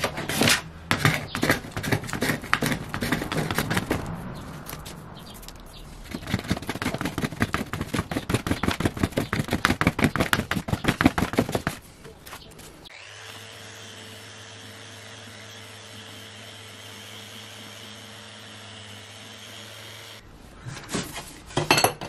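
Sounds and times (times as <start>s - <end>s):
metal scraper scraping wood: 0.0s - 4.1s.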